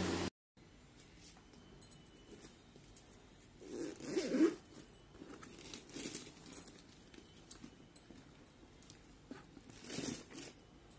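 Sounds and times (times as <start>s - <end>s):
bag rustling: 3.6s - 10.9s.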